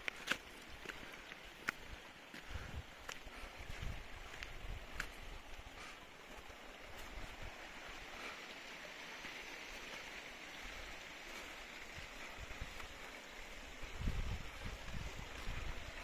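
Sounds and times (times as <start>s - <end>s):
stream running over stones: 0.0s - 16.0s
wind buffeting microphone: 2.4s - 5.5s, 13.6s - 16.0s.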